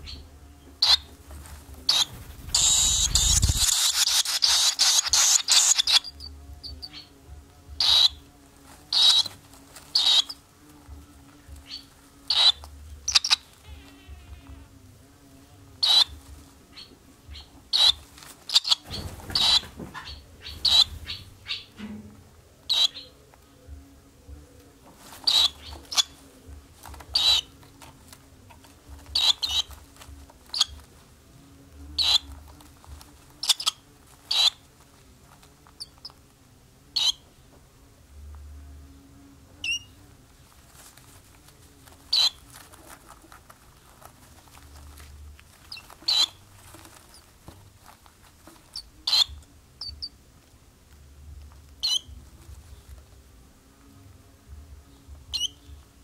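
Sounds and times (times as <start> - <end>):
faint low hum: 0.0 - 56.0
swallows chirping: 1.9 - 7.1, 9.9 - 10.4, 11.7 - 13.5, 17.3 - 21.7, 25.3 - 26.2, 27.1 - 27.5, 29.2 - 29.7, 32.0 - 32.3, 33.4 - 34.6, 45.7 - 46.4, 55.3 - 55.6.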